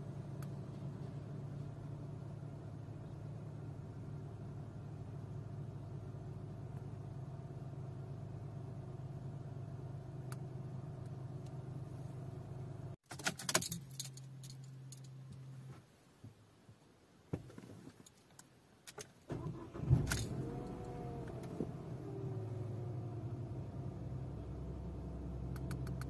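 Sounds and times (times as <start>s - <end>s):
ignition key rattling and clicking: 13.0s - 15.4s
engine cranking and starting: 19.3s - 22.3s.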